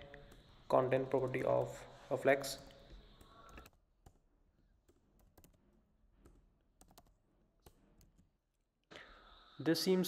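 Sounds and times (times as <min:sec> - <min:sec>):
faint keyboard typing: 0:00.2 - 0:01.8, 0:02.4 - 0:08.3.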